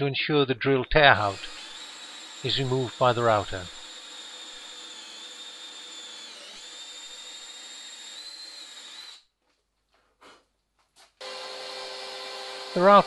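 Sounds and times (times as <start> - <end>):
cordless drill whining: 1.2 - 9.3, 11.2 - 13.0.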